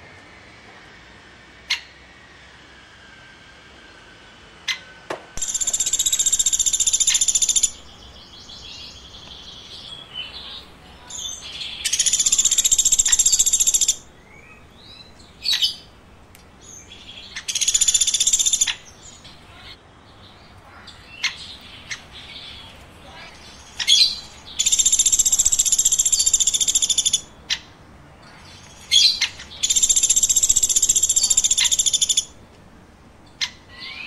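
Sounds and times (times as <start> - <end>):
bird buzzy trills: 4.7 - 16.0, 16.7 - 19.8, 20.7 - 32.4
bird chirps and clicks: 5.4 - 7.8, 9.2 - 9.5, 28.4 - 32.6.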